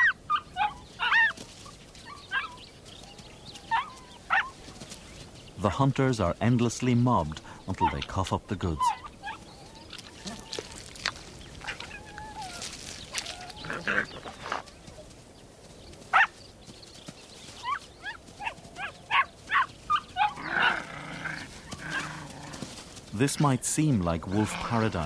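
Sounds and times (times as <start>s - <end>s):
wolf pups whining and squealing: 0.0s - 4.6s, 8.7s - 15.0s, 17.5s - 22.8s.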